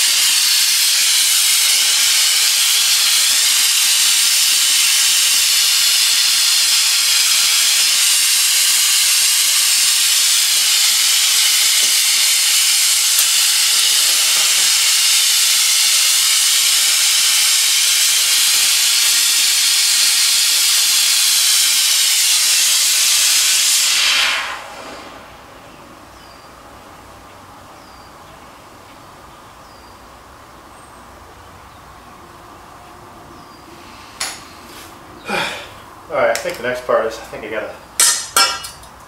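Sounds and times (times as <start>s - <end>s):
torch flame hissing: 0.0s - 26.1s, 33.6s - 35.8s.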